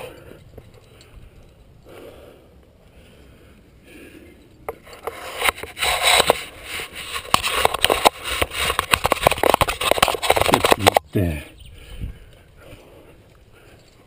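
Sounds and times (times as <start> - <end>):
helmet camera scraping rock: 4.7 - 11.0.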